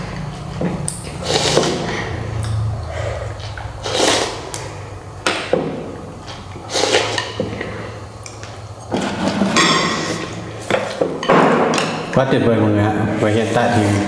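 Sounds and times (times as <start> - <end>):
utensils clacking against bowls: 0.0 - 12.3
slurping noodles: 1.1 - 4.8, 6.3 - 8.0.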